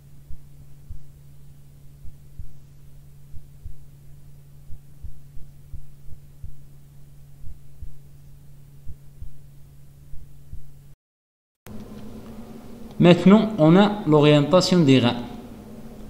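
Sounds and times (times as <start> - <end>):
soft low thumps: 0.0 - 11.0
steady low hum: 0.0 - 11.0, 11.7 - 16.0.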